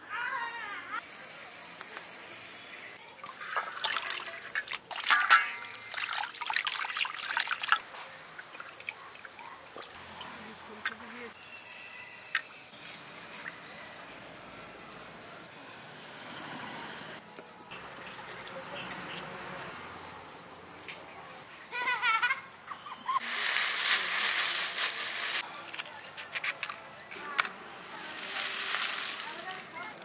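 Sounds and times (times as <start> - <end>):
insects chirping: 0.2 - 30.0
loud rustling: 23.2 - 25.5, 27.8 - 30.0.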